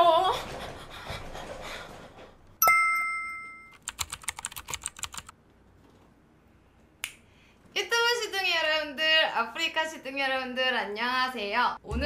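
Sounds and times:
keyboard typing clicks: 3.7 - 5.3.

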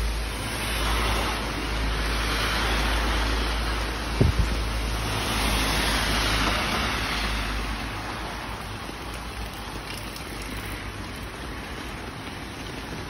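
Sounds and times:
heavy rain on road: 0.0 - 13.0.

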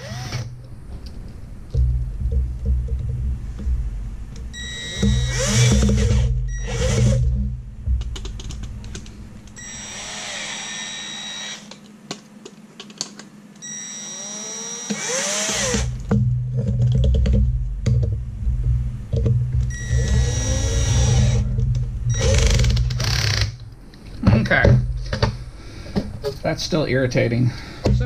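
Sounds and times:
drill drilling into metal: 0.0 - 0.5, 4.6 - 7.2, 9.6 - 11.7, 13.6 - 16.0, 19.7 - 21.4, 22.1 - 23.6
drill clicks: 4.6 - 7.2, 8.0 - 11.9, 12.8 - 16.1, 19.7 - 21.5, 22.1 - 23.8.

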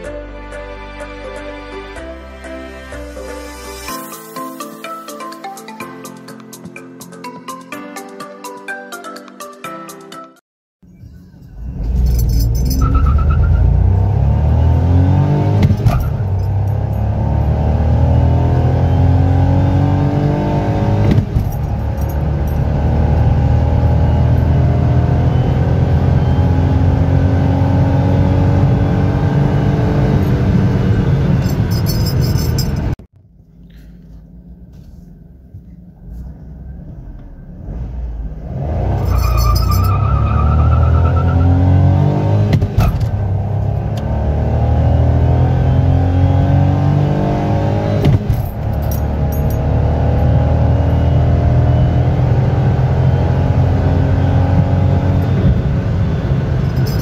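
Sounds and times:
car engine revving hard: 11.7 - 31.8, 37.0 - 57.0.

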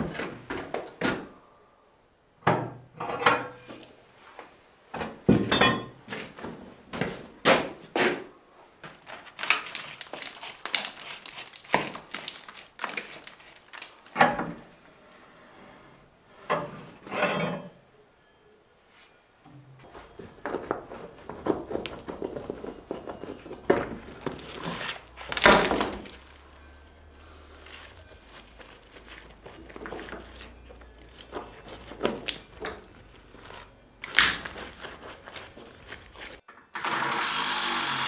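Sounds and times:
flat stones knocking and scraping: 20.2 - 26.4, 27.7 - 36.4.

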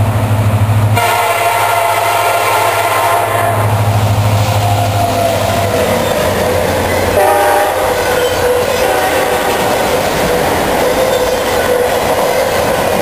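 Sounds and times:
diesel locomotive engine drone: 0.0 - 13.0
train wheels rumbling on rail: 0.0 - 13.0
train horn: 1.0 - 3.8, 7.1 - 10.1
wheel squeal: 4.6 - 7.3, 7.9 - 12.7.

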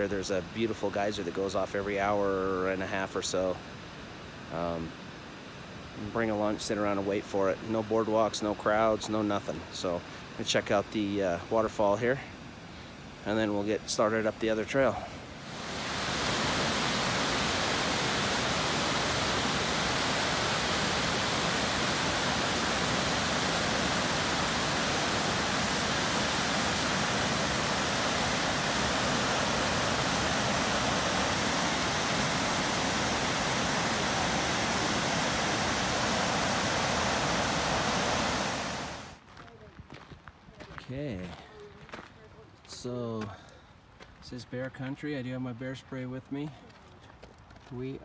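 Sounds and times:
waterfall rushing: 15.2 - 39.2.

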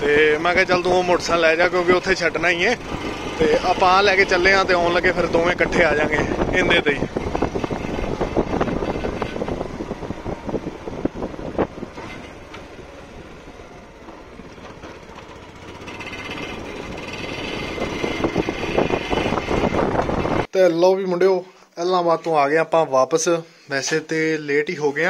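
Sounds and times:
motorcycle engine running: 0.0 - 20.5.

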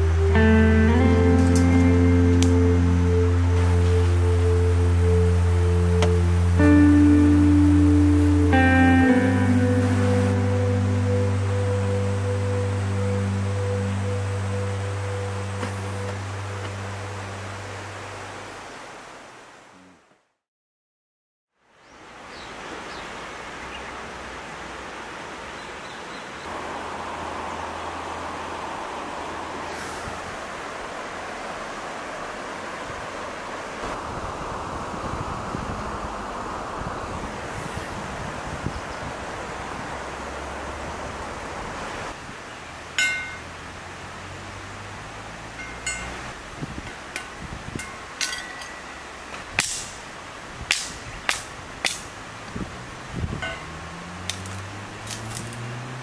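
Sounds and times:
low hum: 0.0 - 18.4
water rushing over rocks: 22.0 - 37.6, 38.2 - 56.0
short metallic ring: 43.0 - 43.5, 45.6 - 49.2, 53.4 - 53.8.

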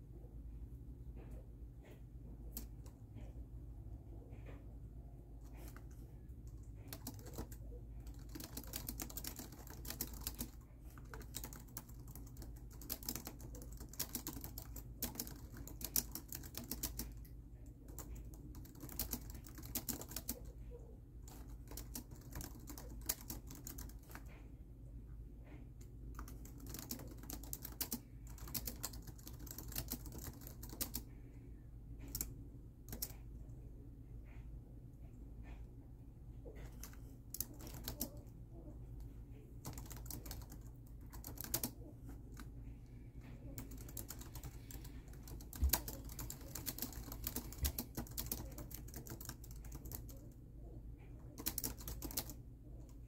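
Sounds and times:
steady low hum: 0.0 - 53.0
laptop keyboard typing: 1.8 - 3.3, 5.4 - 24.4, 25.5 - 31.4, 32.0 - 33.3, 36.5 - 38.3, 39.3 - 42.5, 43.2 - 50.4, 51.1 - 53.0.

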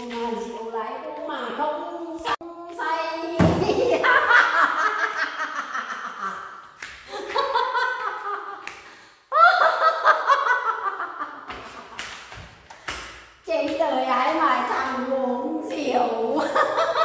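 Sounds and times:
woman laughing hard: 3.6 - 8.7, 9.3 - 12.0.

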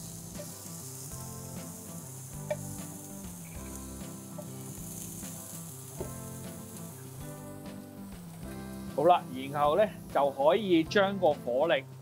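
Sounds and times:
scallops sizzling in a frying pan: 0.0 - 9.3.

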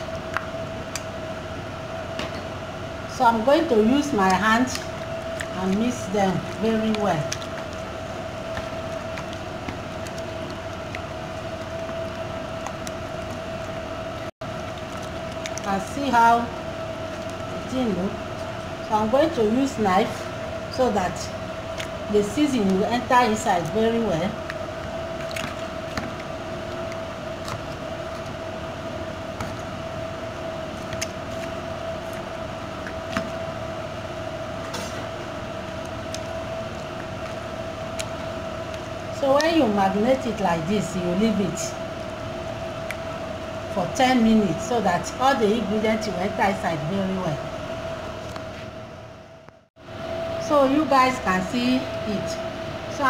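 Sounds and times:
steady whining hum: 0.0 - 53.0
hands squelching wet marinade: 3.7 - 13.7, 14.5 - 20.3, 20.9 - 33.6.

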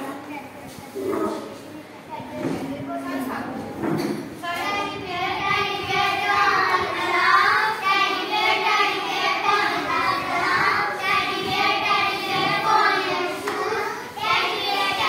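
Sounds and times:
children singing in unison: 4.6 - 15.0.

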